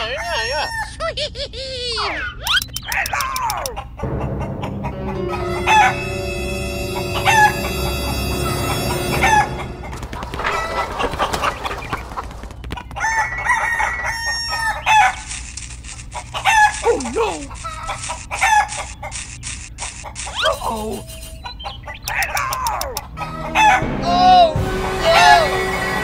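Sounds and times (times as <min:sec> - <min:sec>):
rooster crowing: 0:00.0 - 0:01.0, 0:04.9 - 0:06.4, 0:07.0 - 0:12.2, 0:13.0 - 0:15.3, 0:16.3 - 0:19.0, 0:23.1 - 0:23.9
chickens clucking: 0:02.0 - 0:06.1, 0:07.0 - 0:24.0.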